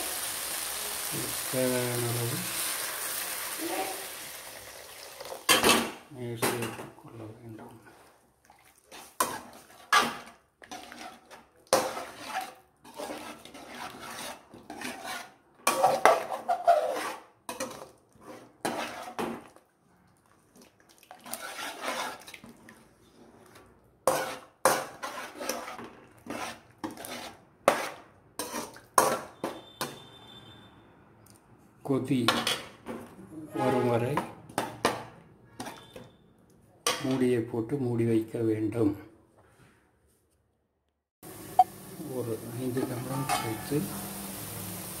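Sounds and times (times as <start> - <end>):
metal spoon scraping pot: 8.9 - 19.2, 21.2 - 22.4, 23.4 - 28.8, 35.5 - 36.1, 42.8 - 43.8
spoon clinking on pot: 43.2 - 43.7.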